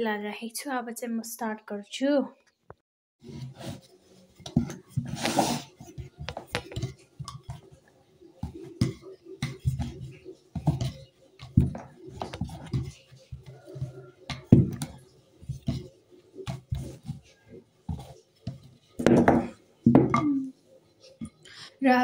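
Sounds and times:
rolling pin rolling dough on board: 3.3s - 20.1s.

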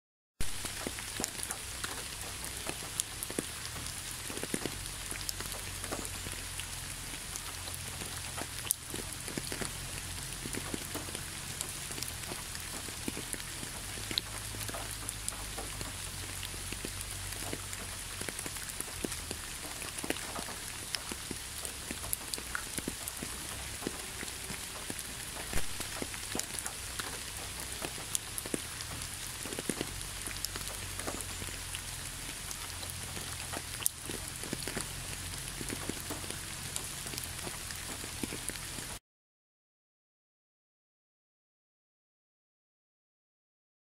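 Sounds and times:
light rain falling: 0.4s - 39.0s
raindrop ticks: 0.4s - 39.0s.

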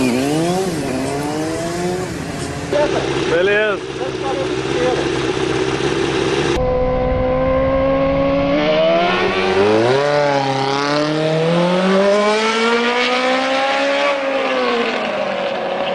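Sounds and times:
small engine revving: 0.0s - 15.8s.

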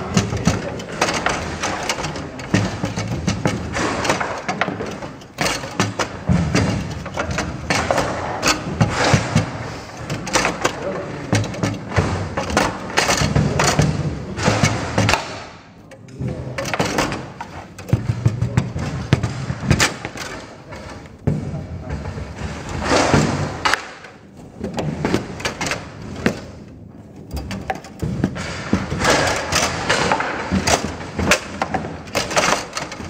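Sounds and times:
foosball ball knocks: 0.0s - 15.6s
foosball rods clattering: 0.0s - 33.0s.

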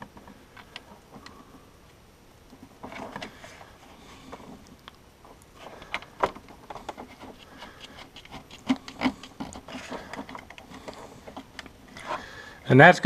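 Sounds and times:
cable rubbing and rustling: 2.5s - 12.8s.

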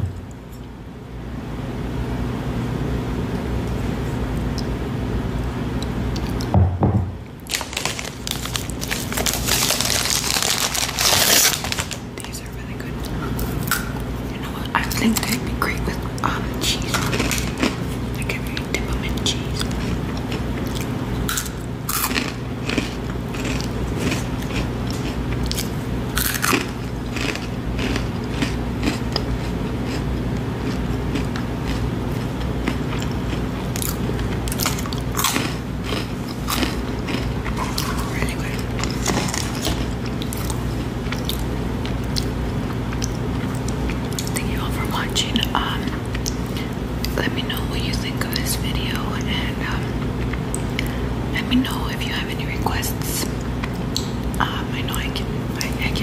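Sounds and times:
low hum with hiss: 0.0s - 56.0s
person chewing crunchy food: 5.4s - 6.5s, 7.4s - 15.0s, 16.0s - 44.6s, 45.6s - 47.2s, 49.6s - 51.1s.

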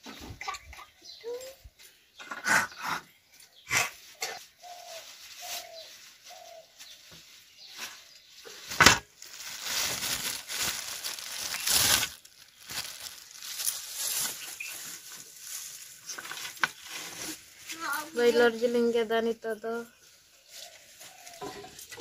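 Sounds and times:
plastic bag rustling: 4.2s - 22.0s
bird calling: 12.6s - 15.0s.

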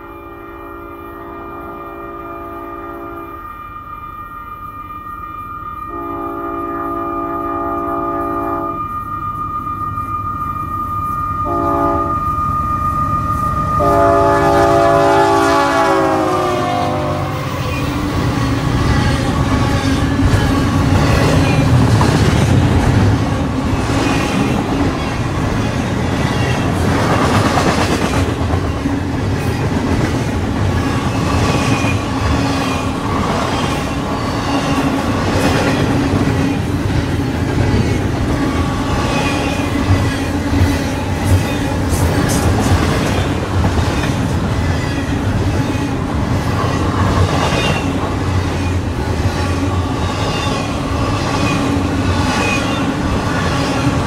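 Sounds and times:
train air horn blasts: 0.0s - 17.6s
diesel locomotives passing: 0.0s - 54.0s
freight cars clickety-clack: 17.6s - 54.0s.

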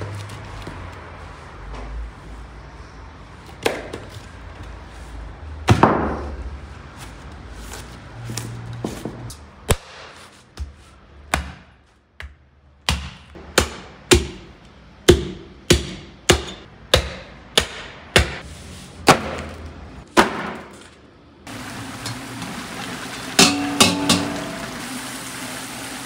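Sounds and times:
butcher's blade chopping meat and bone: 9.7s - 18.4s.

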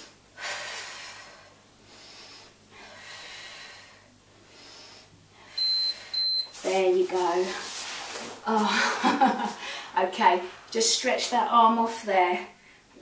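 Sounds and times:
heavy breathing: 0.0s - 5.6s
loud electronic timer beep: 5.6s - 6.6s.

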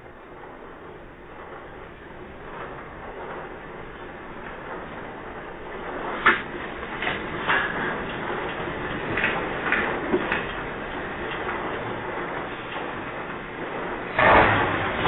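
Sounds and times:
earthquake rumble: 0.0s - 15.0s.

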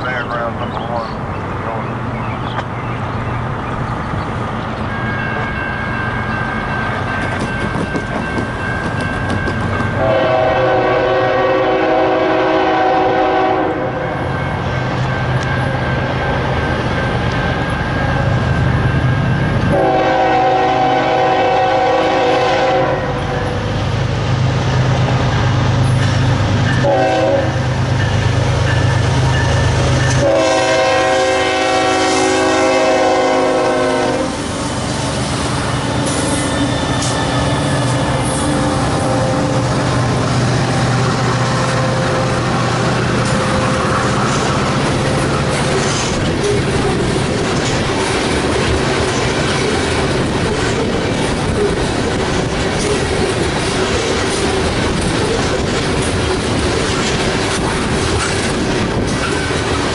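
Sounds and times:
locomotive engine rumble: 0.0s - 59.9s
locomotive horn blasts: 10.0s - 14.1s, 19.7s - 23.6s, 26.8s - 27.7s, 30.1s - 34.4s, 37.7s - 39.8s.

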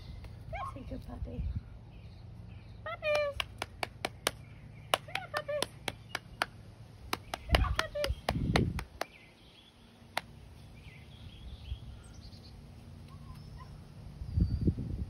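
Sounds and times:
small birds chirping: 0.0s - 15.0s
low rumbling on microphone: 7.4s - 9.0s, 14.1s - 15.0s.

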